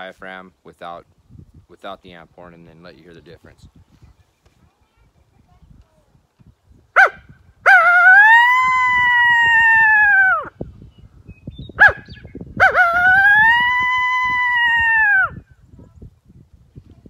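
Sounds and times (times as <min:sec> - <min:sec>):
coyote howl call: 0:07.7 - 0:10.5, 0:12.6 - 0:15.4.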